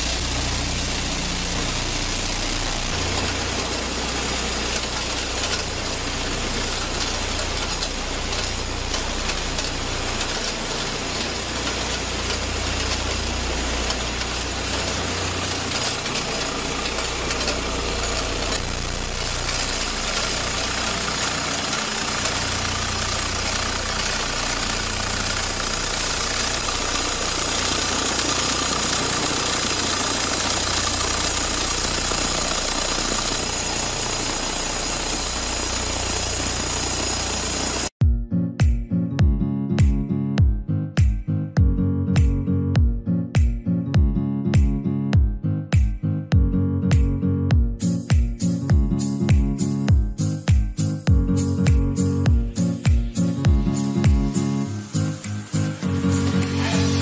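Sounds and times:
factory machinery rumble and hiss: 0.0 - 37.9, 52.6 - 57.0
faint steady whine: 0.0 - 37.9.

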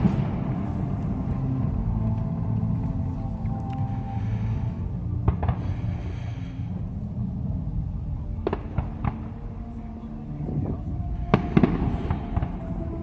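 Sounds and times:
low rumble: 0.0 - 13.0
distant fireworks bangs: 5.2 - 6.0, 8.4 - 9.5, 11.2 - 13.0.

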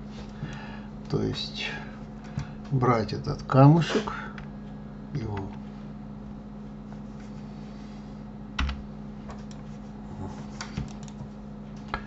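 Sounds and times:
steady low hum: 0.0 - 12.0
keyboard and mouse clicks: 10.6 - 11.2.

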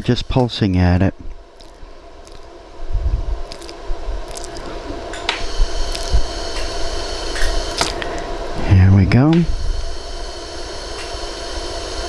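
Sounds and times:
machine hum: 0.0 - 12.0
laser welder pulses snapping: 3.4 - 8.2.

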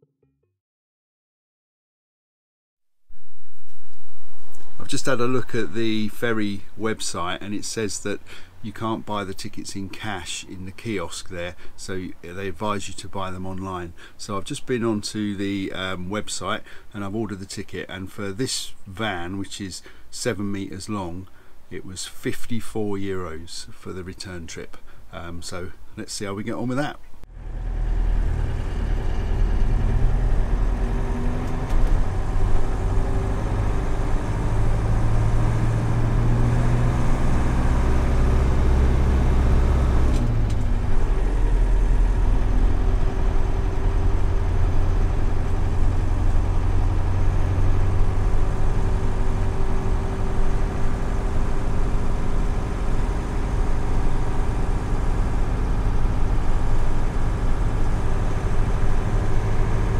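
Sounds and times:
road noise: 3.1 - 18.0, 24.8 - 59.9
diesel truck engine: 4.3 - 17.8, 27.2 - 59.9.

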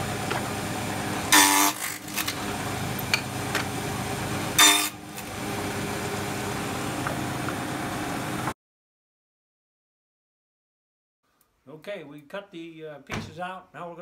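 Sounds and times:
table saw motor hum: 0.0 - 8.5
saw blade cutting wood: 1.3 - 3.3, 4.6 - 5.3.

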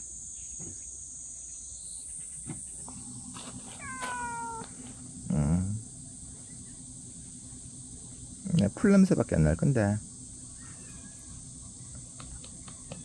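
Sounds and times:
high insect buzz: 0.0 - 13.0
cat meowing: 3.7 - 4.9.

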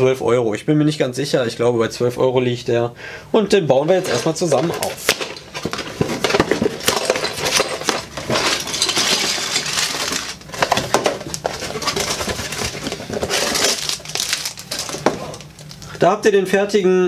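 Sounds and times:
cardboard box rustling: 3.8 - 15.8.

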